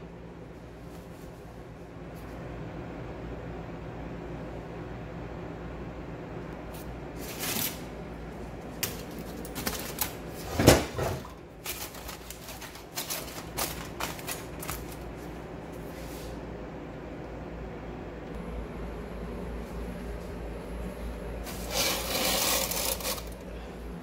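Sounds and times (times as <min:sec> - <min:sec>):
aluminium foil crinkling: 0:08.8 - 0:10.4, 0:11.3 - 0:15.2, 0:21.5 - 0:23.4
low hum: 0:11.4 - 0:24.0.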